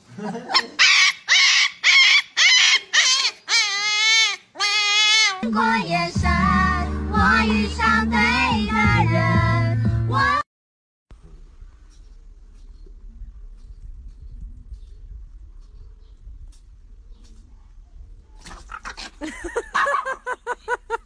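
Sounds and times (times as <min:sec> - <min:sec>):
puppy yelping: 0:00.5 - 0:05.4
puppy howling: 0:00.8 - 0:05.5
music with bass and singing: 0:05.4 - 0:10.4.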